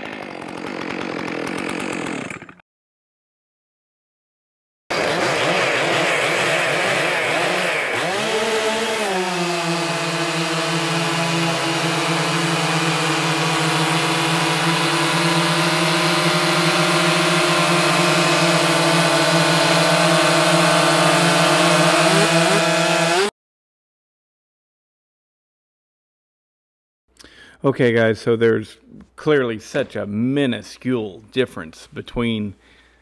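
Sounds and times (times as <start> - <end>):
chainsaw cutting log: 0.0 - 2.6, 4.9 - 23.3.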